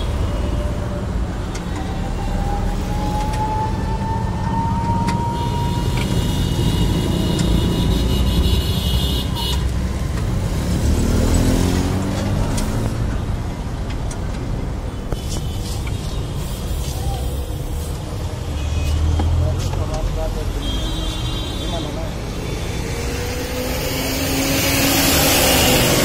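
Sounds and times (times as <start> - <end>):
road traffic rumbling: 0.0 - 26.0
vehicle passing: 10.0 - 13.2, 21.9 - 26.0.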